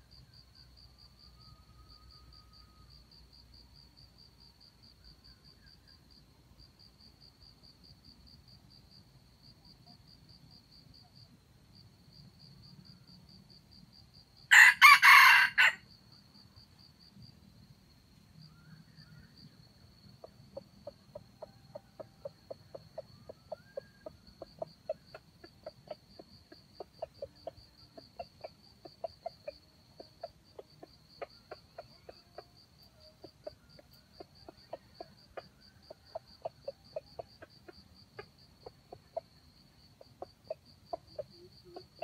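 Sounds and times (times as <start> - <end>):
insect pulsing trill: 0.0 - 14.7, 18.2 - 42.0
junglefowl clucking: 20.2 - 42.0.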